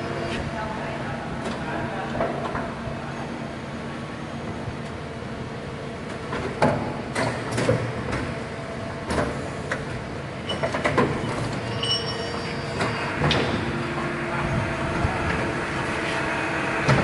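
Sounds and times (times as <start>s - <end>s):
steady machine hum: 0.0s - 17.0s.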